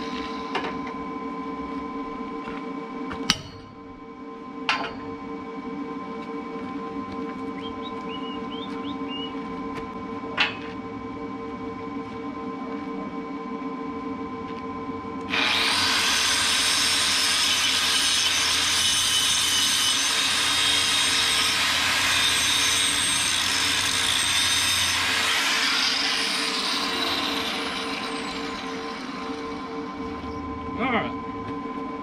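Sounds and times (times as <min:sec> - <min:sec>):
angle grinder grinding steel: 0:15.3 - 0:30.0.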